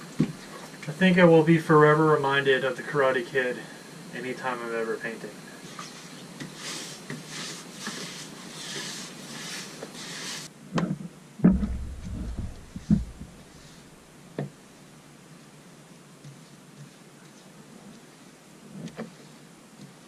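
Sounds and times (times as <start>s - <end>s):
paintbrush swishing on plywood: 5.7s - 10.5s
low thumps: 11.4s - 14.0s.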